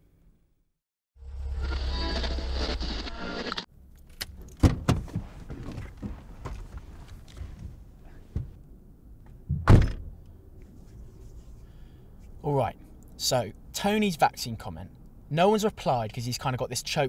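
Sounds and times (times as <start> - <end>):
car door clicks and rattles: 4.0 - 8.6, 9.5 - 10.1.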